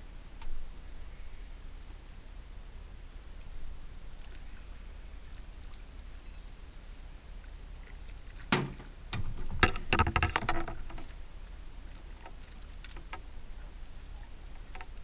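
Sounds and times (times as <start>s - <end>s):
fish knocking on metal boat: 8.5s - 10.8s.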